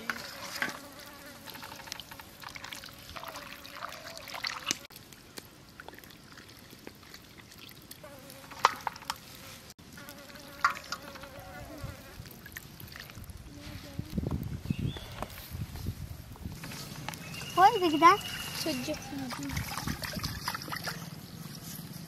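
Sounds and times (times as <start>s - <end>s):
water sloshing in a bowl: 0.0s - 4.9s, 5.7s - 9.2s, 12.1s - 13.5s, 16.6s - 21.7s.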